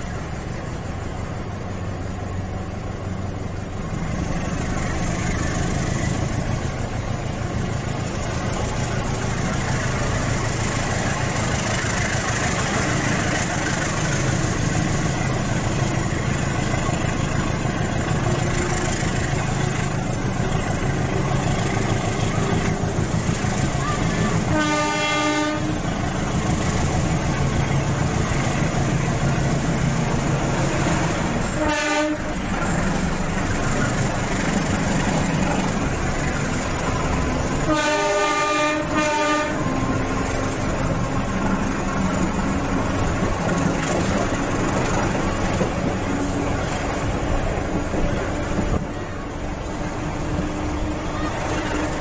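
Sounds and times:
train rumble and clatter: 0.0s - 52.0s
locomotive air horn: 23.8s - 26.0s, 31.4s - 32.5s, 37.6s - 40.2s.

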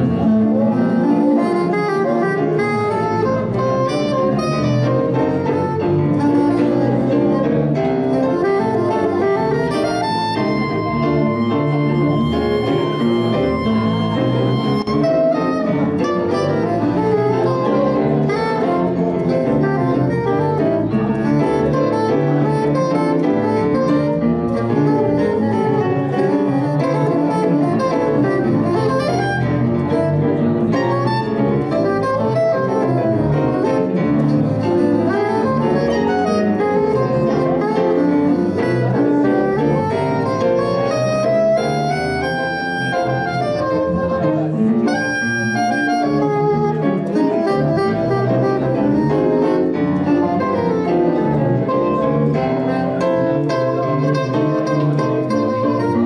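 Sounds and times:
piano: 0.0s - 56.0s
soprano saxophone playing: 0.0s - 56.0s
electric bass: 2.3s - 22.2s.

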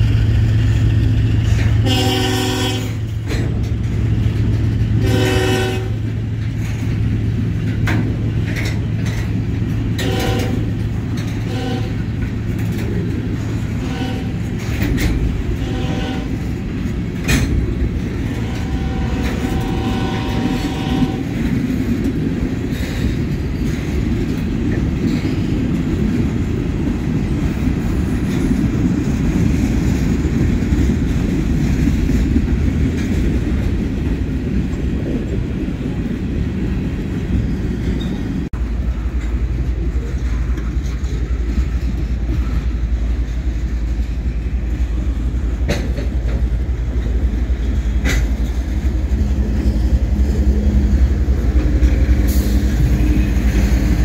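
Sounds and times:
train cars clanking: 0.0s - 54.0s
train wheels rumbling on rails: 0.0s - 54.0s
train horn blasts: 1.5s - 3.4s, 5.0s - 6.2s, 9.9s - 12.3s, 13.3s - 17.5s, 18.2s - 21.4s.

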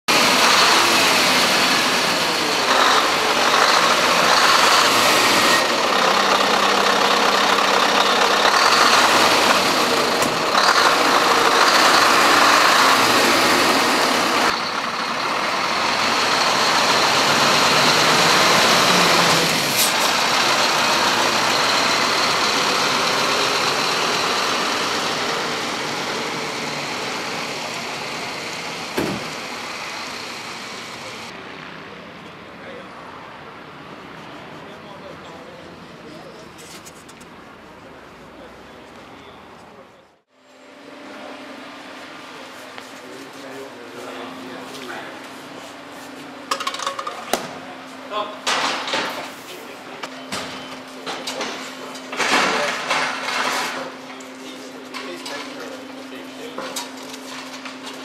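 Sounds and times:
diesel truck engine running: 0.1s - 32.0s.

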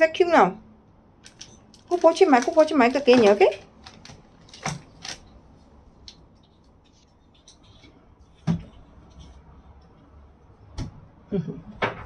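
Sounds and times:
faint clicks and rustles: 1.2s - 10.1s.

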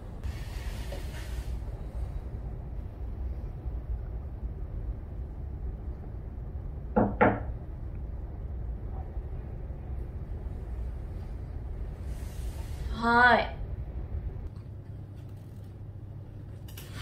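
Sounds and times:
low room hum: 0.0s - 17.0s
knocks on a door: 7.0s - 7.5s.

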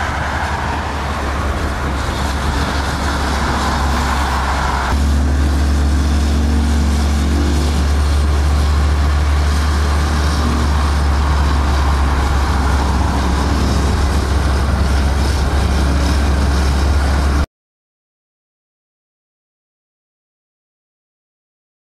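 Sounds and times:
road noise: 0.0s - 17.5s
scooter engine: 0.7s - 17.4s.

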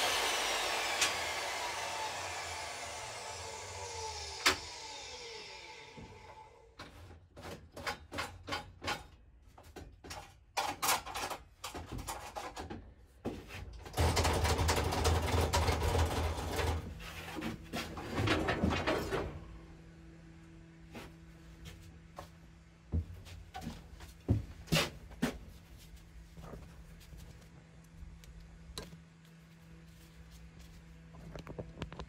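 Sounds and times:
table saw spinning down: 0.0s - 6.6s.

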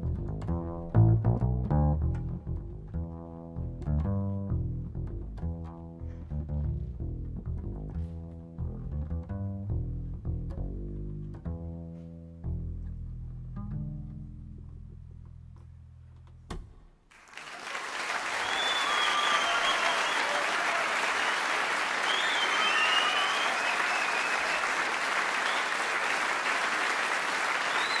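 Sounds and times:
low double bass note: 0.0s - 16.5s
audience applauding: 17.1s - 28.0s
whistles: 17.4s - 26.2s, 27.5s - 28.0s.

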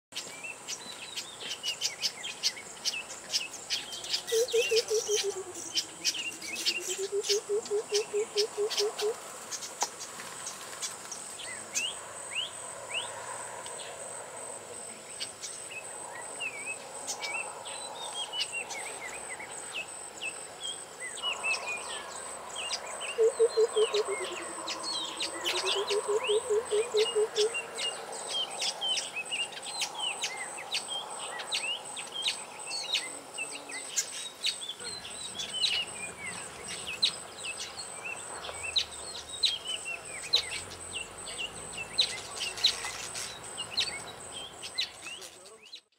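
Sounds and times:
small birds chirping: 0.1s - 14.0s, 14.8s - 45.9s
high insect whine: 1.6s - 45.2s
bird bubbling hooting call: 4.3s - 9.2s, 23.1s - 27.7s.

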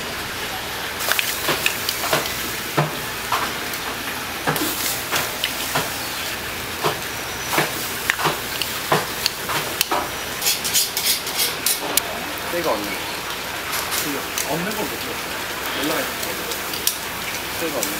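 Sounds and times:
charcoal grill hissing: 0.0s - 17.9s.

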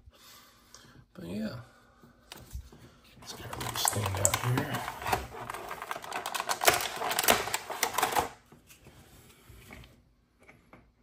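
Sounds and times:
plastic tray crackling and clicking: 3.3s - 8.4s.

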